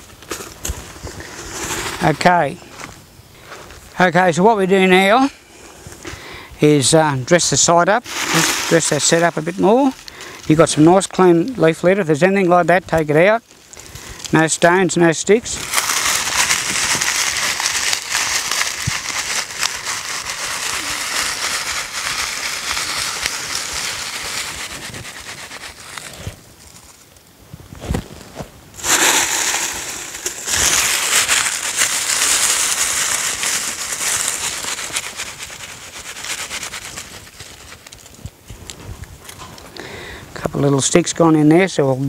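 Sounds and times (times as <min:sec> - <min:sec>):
dry leaves crackling and rustling: 0:07.3 - 0:27.2, 0:28.8 - 0:38.4.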